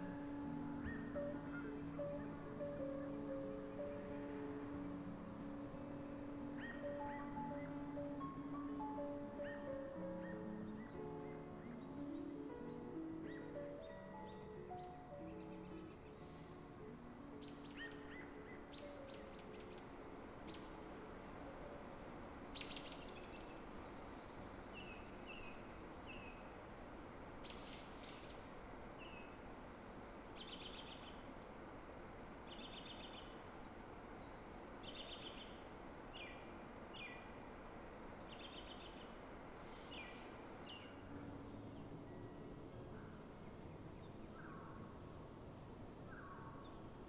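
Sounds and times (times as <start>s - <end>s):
steady background noise: 14.6s - 47.0s.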